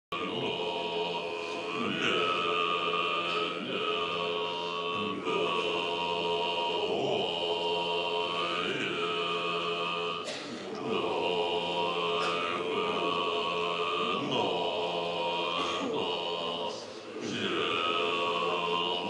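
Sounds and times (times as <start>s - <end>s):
ritual chanting with held notes: 0.1s - 19.0s.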